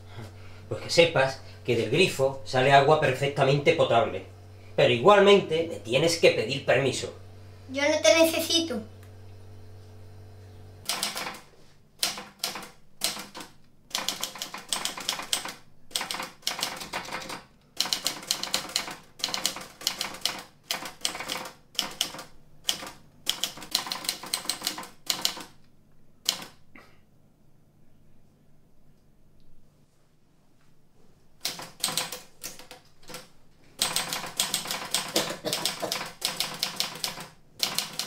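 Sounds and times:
typewriter keystrokes: 0:10.8 - 0:25.6, 0:26.2 - 0:26.6, 0:31.4 - 0:38.0.

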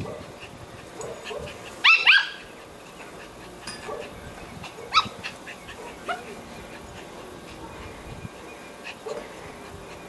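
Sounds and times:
small dog barking: 0:00.0 - 0:02.5, 0:04.7 - 0:06.4, 0:08.9 - 0:09.4.

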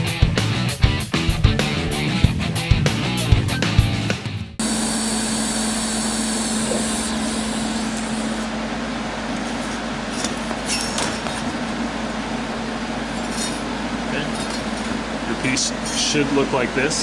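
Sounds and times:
fan humming and hissing: 0:04.6 - 0:17.0.

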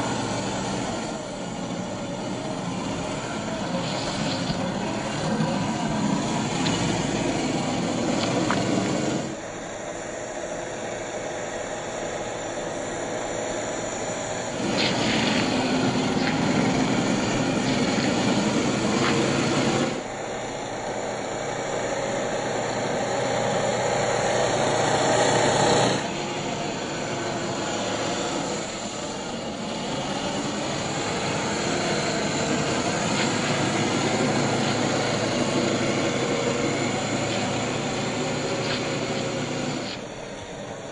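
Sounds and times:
toy car motor running: 0:21.8 - 0:40.1.

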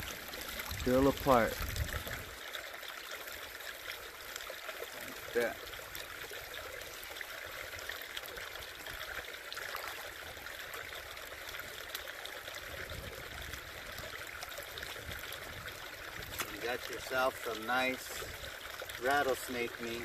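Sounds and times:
creek trickling over rocks: 0:00.0 - 0:20.0.

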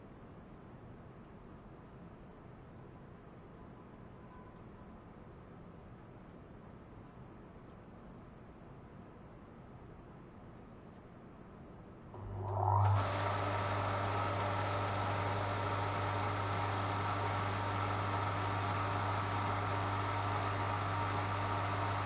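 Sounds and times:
pump mains hum: 0:12.1 - 0:22.0
circulating water hiss: 0:12.6 - 0:22.0.

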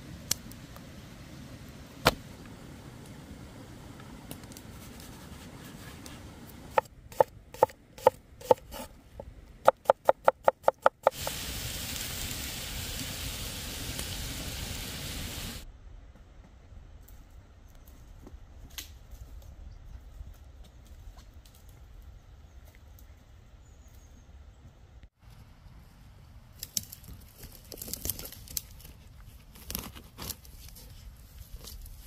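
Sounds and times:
knife chopping on wooden board: 0:06.7 - 0:08.9
pan sizzling: 0:11.0 - 0:15.6.

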